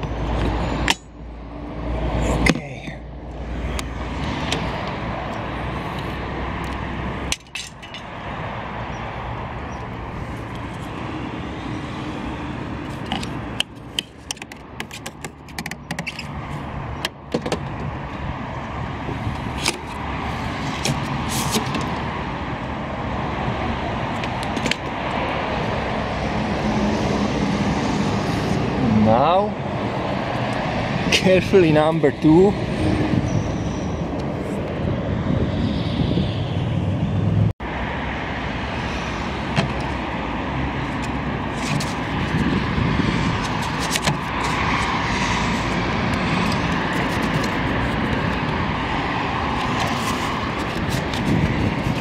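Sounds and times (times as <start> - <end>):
road traffic rumble: 0.0 - 52.0
sharp clicks and knocks: 13.0 - 16.4.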